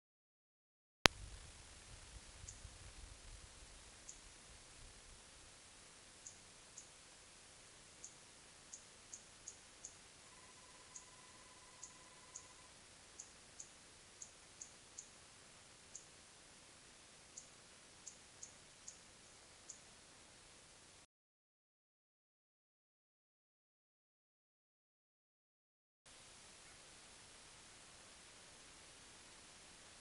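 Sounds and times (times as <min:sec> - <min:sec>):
faint steady tone: 0:01.1 - 0:21.1, 0:26.1 - 0:30.0
microphone hiss: 0:01.1 - 0:21.1, 0:26.1 - 0:30.0.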